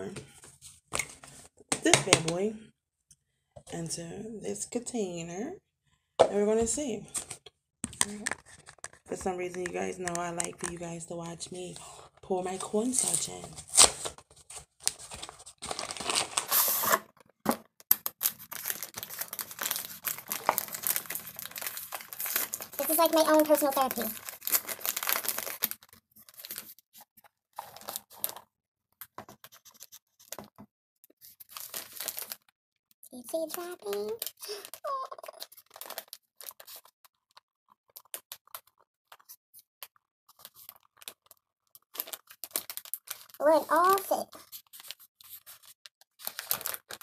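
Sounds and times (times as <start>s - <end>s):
paper bag crinkling: 12.7s - 17.2s, 18.2s - 26.8s, 27.6s - 28.4s, 31.3s - 32.5s, 33.2s - 37.3s, 40.3s - 47.0s
cardboard tearing: 13.0s - 17.1s, 18.2s - 26.7s, 41.9s - 47.0s
cardboard clicks and crackles: 13.6s - 30.6s, 33.4s - 47.0s
powder pouring into plastic tub: 18.2s - 25.8s.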